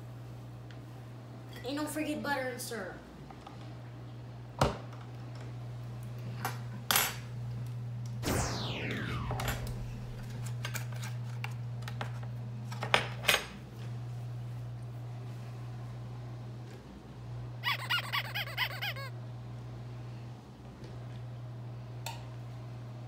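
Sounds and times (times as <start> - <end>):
steady low hum: 8.2 - 10.9
short falling squeal: 8.3 - 10.2, 17.6 - 19.1.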